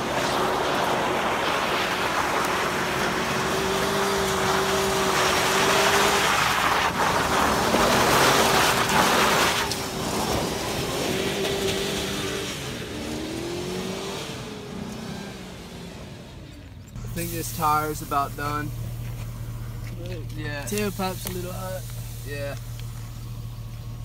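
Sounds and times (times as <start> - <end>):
tire spinning on dirt: 0.0 - 24.0
truck engine revving: 0.0 - 24.0.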